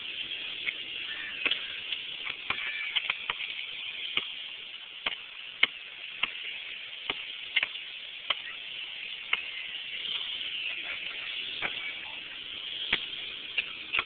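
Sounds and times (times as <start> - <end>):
steady hiss: 0.0 - 14.0
basketball bouncing on asphalt: 0.6 - 6.4, 7.0 - 8.5, 12.8 - 14.0.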